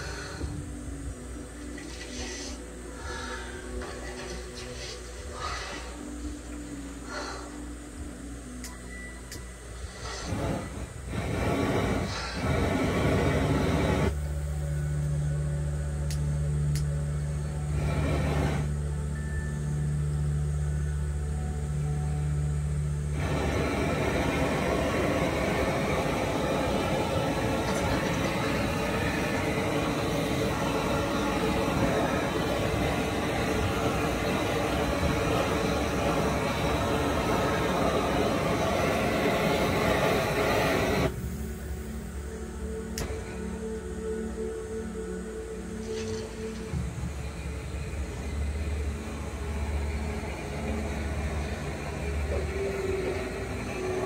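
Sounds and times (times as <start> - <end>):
low machine hum: 0.0 - 54.0
music with steady tones: 0.0 - 54.0
machinery rushing noise: 9.9 - 14.2, 17.7 - 18.8, 23.1 - 41.8, 45.9 - 54.0.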